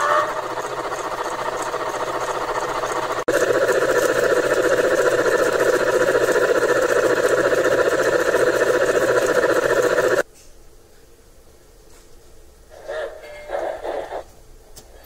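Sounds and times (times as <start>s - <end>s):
model locomotive clattering: 0.0s - 10.2s.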